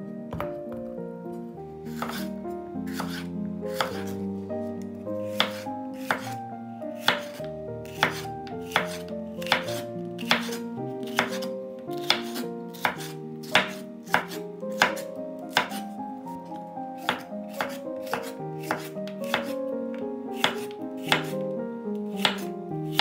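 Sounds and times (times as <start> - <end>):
soft background music: 0.0 - 23.0.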